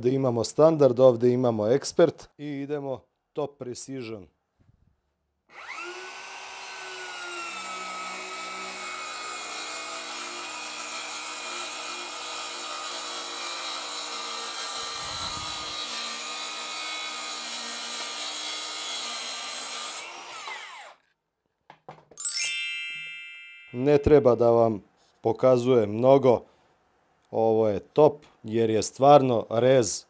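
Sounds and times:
saw blade rasping through board: 0:05.6 - 0:21.0.

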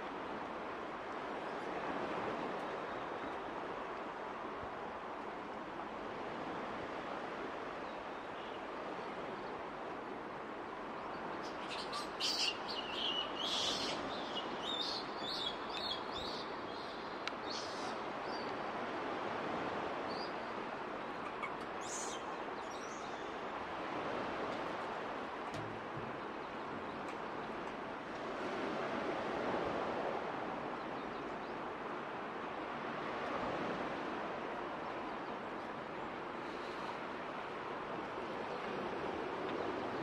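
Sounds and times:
steady background hiss: 0:00.0 - 0:30.5.

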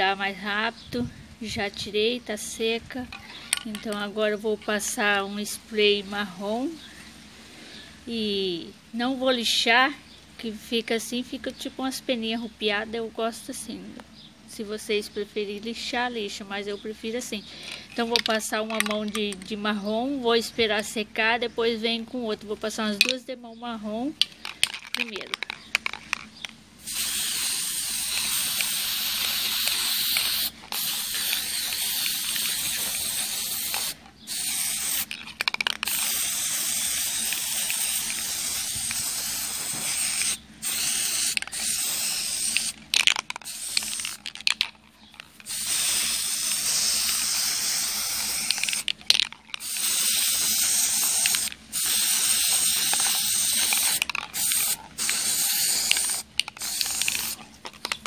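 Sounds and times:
aerosol spray can hissing: 0:26.8 - 0:44.6, 0:45.2 - 0:49.0, 0:49.6 - 0:58.0.

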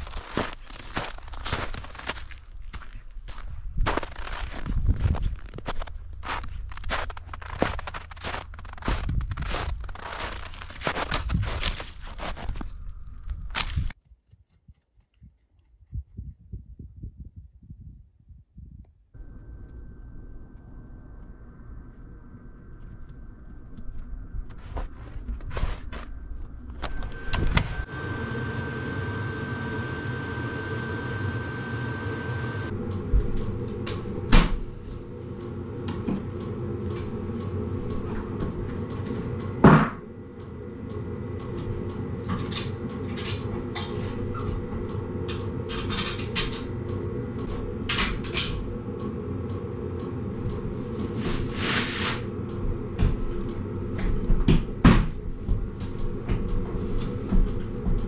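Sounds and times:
steady low hum: 0:00.0 - 0:14.0, 0:15.1 - 0:58.0.

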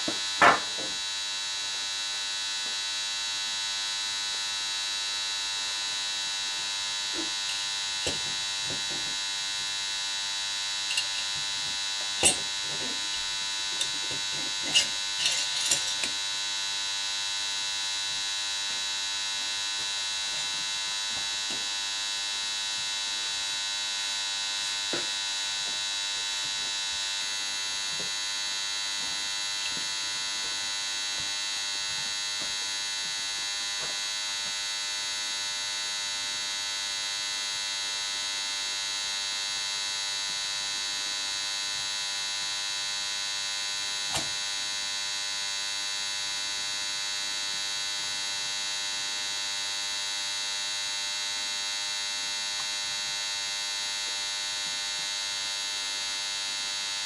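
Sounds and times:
electrical hum and high whine: 0:00.0 - 0:57.0
metal parts clicking: 0:10.9 - 0:11.3, 0:14.7 - 0:16.1.

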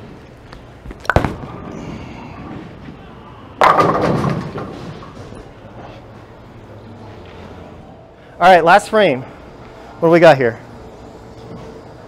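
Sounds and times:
bowling ball rolling rumble: 0:00.9 - 0:06.0
bowling pins crashing: 0:01.1 - 0:02.9, 0:03.6 - 0:05.5
bowling ball thud on lane: 0:03.6 - 0:05.1.

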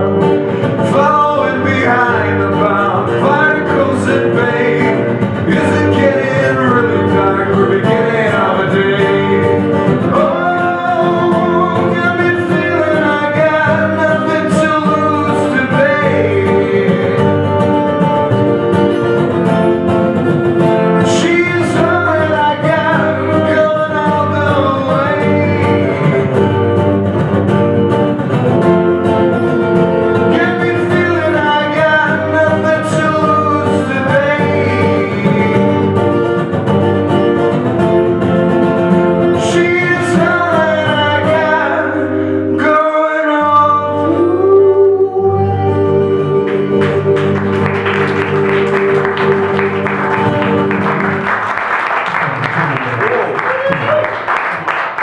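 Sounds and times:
man singing: 0:00.0 - 0:18.1, 0:20.6 - 0:26.8, 0:29.4 - 0:36.4, 0:38.6 - 0:50.7
acoustic guitars strumming: 0:00.0 - 0:55.0.

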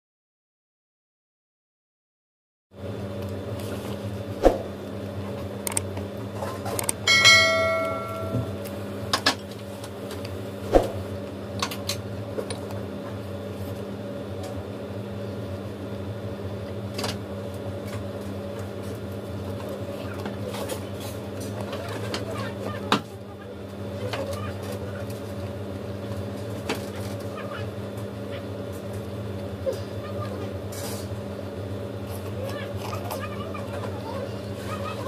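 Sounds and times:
low hum: 0:06.9 - 0:09.1
bell-like ring: 0:07.1 - 0:08.6.

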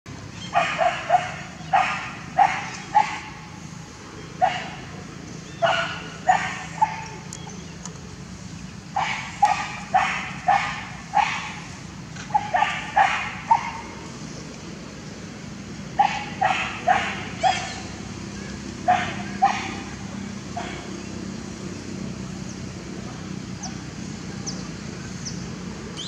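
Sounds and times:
dog barking: 0:00.5 - 0:03.4, 0:04.4 - 0:04.8, 0:05.6 - 0:07.2, 0:09.0 - 0:11.6, 0:12.3 - 0:13.9, 0:16.0 - 0:17.8, 0:18.8 - 0:19.9, 0:20.6 - 0:20.9.

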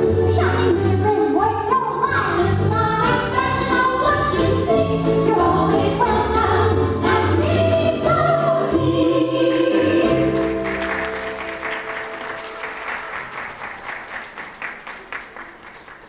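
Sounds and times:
recorded music with sung notes: 0:00.0 - 0:12.6
audience applause: 0:10.4 - 0:16.0.

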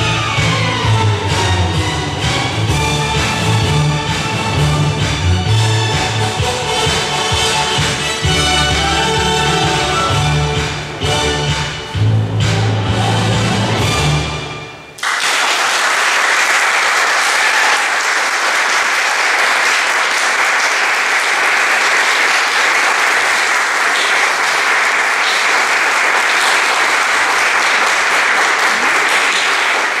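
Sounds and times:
audience applauding: 0:15.0 - 0:30.0.

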